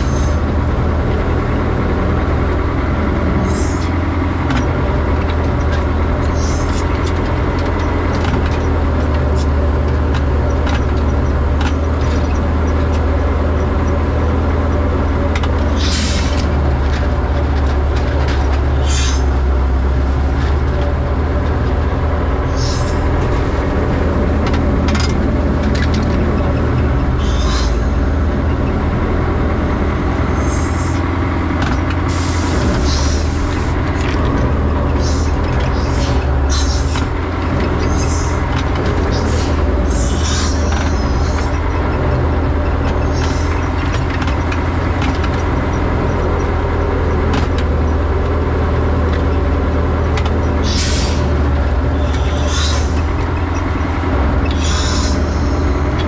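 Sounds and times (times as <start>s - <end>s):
excavator engine running: 0.0s - 56.0s
hiss bursts: 52.0s - 53.0s, 54.6s - 55.6s.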